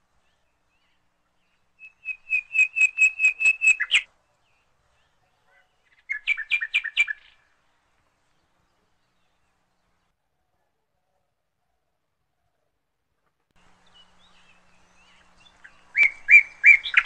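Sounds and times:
bird chirping: 0:00.0 - 0:10.2, 0:13.6 - 0:17.0.

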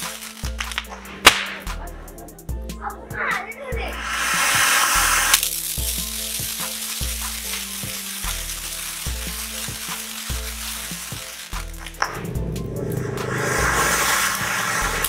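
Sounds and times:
background music with steady beat: 0:00.0 - 0:15.0
fountain firework hissing: 0:03.8 - 0:15.0.

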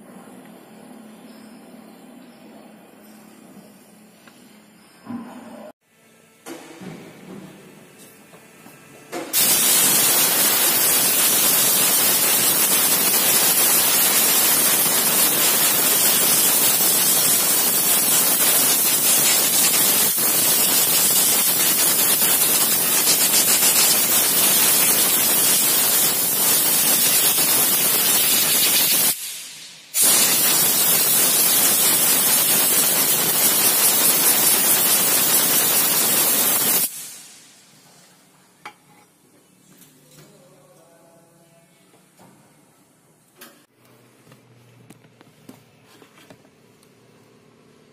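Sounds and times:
air blow gun hissing: 0:09.4 - 0:37.7.

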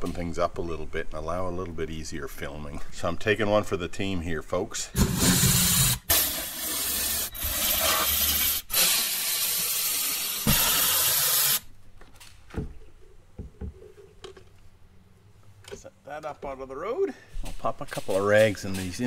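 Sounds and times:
power ratchet running: 0:05.0 - 0:11.6.

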